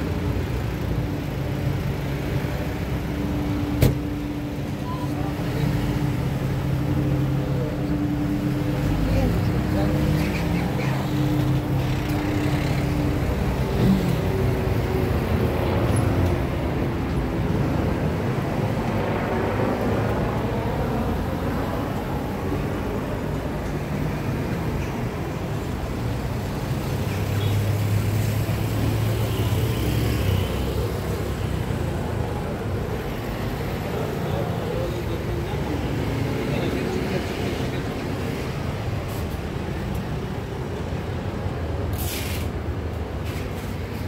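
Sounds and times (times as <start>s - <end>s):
road traffic: 0.0s - 44.0s.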